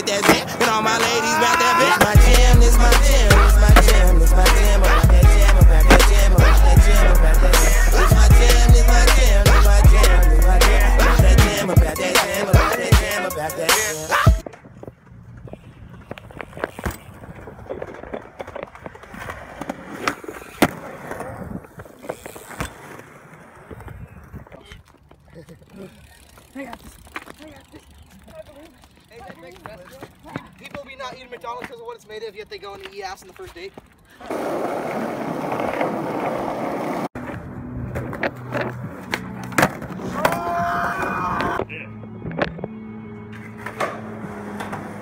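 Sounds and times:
wheels rolling on concrete: 0:00.0 - 0:41.7, 0:42.4 - 0:45.0.

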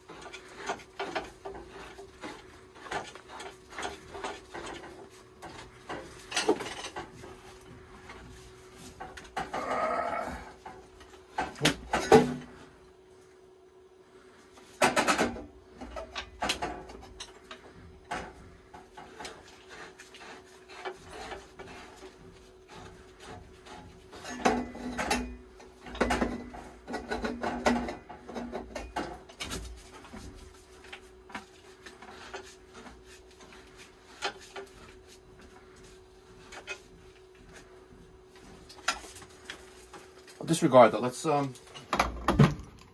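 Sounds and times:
tools and pipe fittings clinking: 0:00.0 - 0:08.2, 0:14.9 - 0:34.9
faint steady hum: 0:00.0 - 0:42.9.

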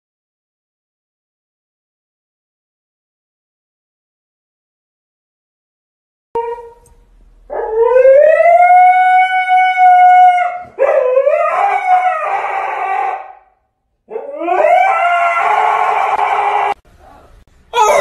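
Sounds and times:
dog howling: 0:06.4 - 0:06.9, 0:07.5 - 0:13.5, 0:14.1 - 0:16.8, 0:17.7 - 0:18.0.

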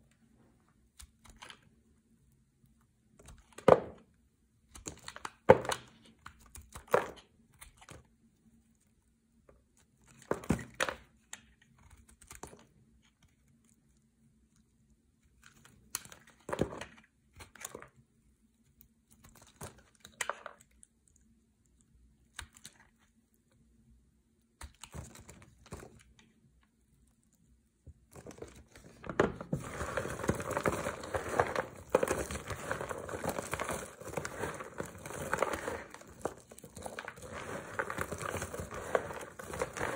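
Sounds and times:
soap shavings crackling: 0:29.5 - 0:39.9.

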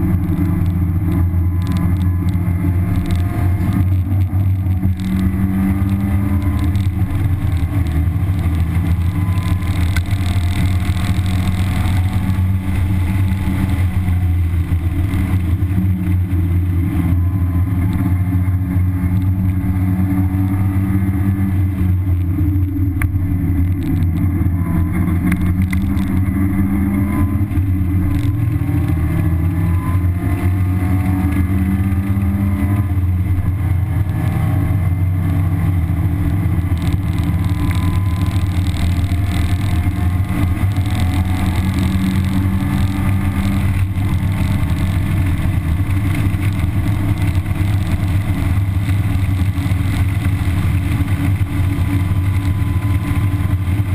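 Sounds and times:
car engine revving: 0:00.0 - 0:53.9
wind and road noise: 0:00.0 - 0:53.9.

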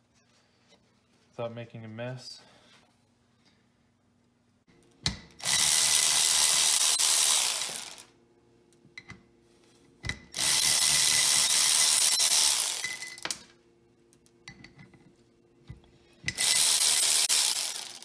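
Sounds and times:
electric ratchet spinning bolts: 0:05.4 - 0:08.1, 0:10.4 - 0:13.4, 0:16.3 - 0:18.0.

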